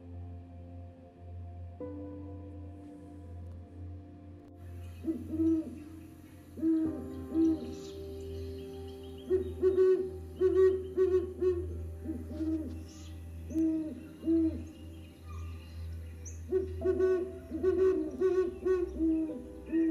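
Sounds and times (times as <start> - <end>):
owls hooting: 5.0 - 19.9.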